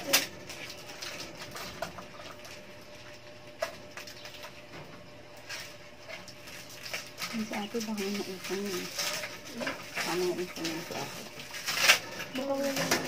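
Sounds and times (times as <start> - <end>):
plastic crinkling: 5.3 - 13.0
scissors cutting plastic: 5.5 - 13.0.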